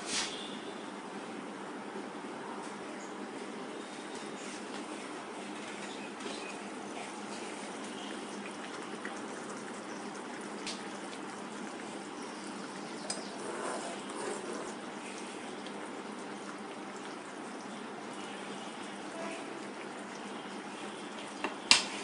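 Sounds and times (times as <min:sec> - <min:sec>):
curry bubbling in a pot: 0:04.4 - 0:22.0.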